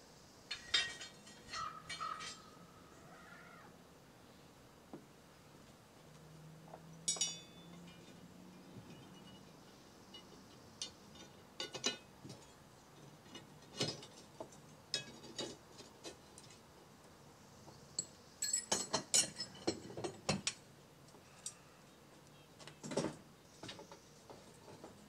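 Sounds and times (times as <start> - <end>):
steel leaves clinking and scraping: 0.5 - 2.9, 7.0 - 16.7, 17.9 - 20.6, 21.2 - 21.8, 22.6 - 25.0.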